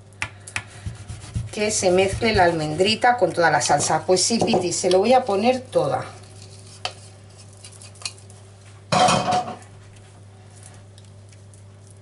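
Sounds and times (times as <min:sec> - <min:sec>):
cup and utensil knocking on bowl: 0:03.8 - 0:04.7, 0:08.9 - 0:09.6.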